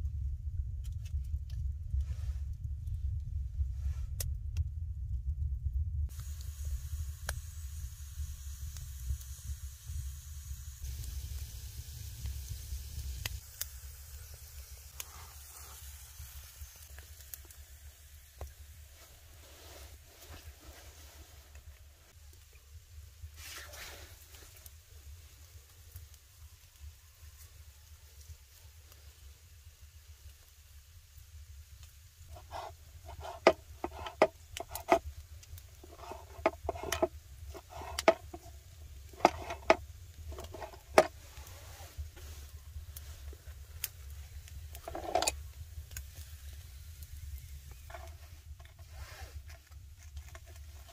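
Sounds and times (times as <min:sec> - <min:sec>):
low rumble: 0:00.0 - 0:13.4
soft hiss of embers: 0:00.0 - 0:50.9
wood fire crackling: 0:00.0 - 0:50.9
sharp pops from fire: 0:04.1 - 0:04.7, 0:06.1 - 0:18.8, 0:31.8 - 0:50.8.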